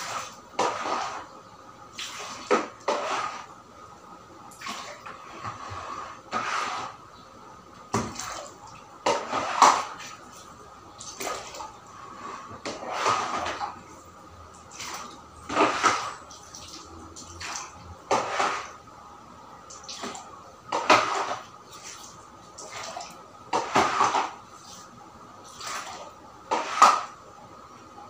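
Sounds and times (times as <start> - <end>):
dustpan scraping tile floor: 0.0 - 1.3, 2.0 - 3.6, 4.7 - 7.0, 9.1 - 10.2, 12.0 - 13.8, 14.8 - 16.3, 18.1 - 18.8, 20.7 - 21.4, 23.5 - 24.9, 25.6 - 27.1
water splashing into bucket: 8.0 - 11.8.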